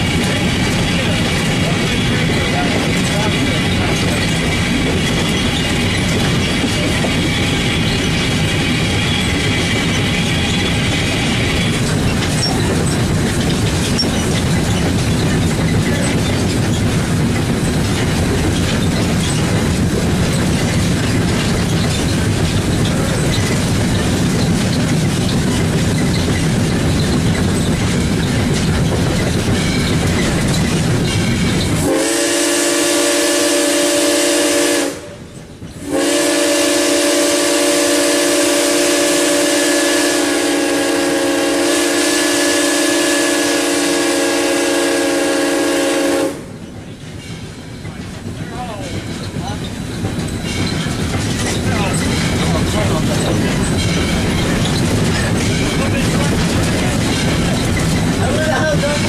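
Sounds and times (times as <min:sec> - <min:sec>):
steam locomotive rumbling: 0:00.0 - 0:59.0
steam whistle blowing: 0:31.8 - 0:35.2, 0:35.8 - 0:46.5.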